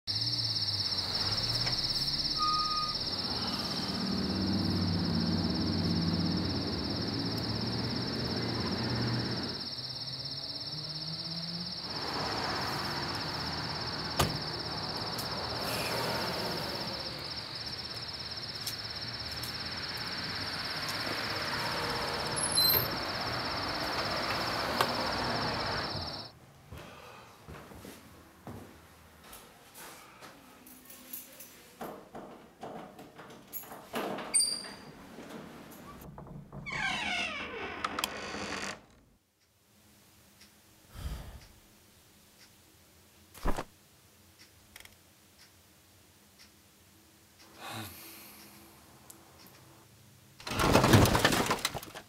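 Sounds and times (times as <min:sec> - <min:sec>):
crickets chirring: 0:00.1 - 0:26.3.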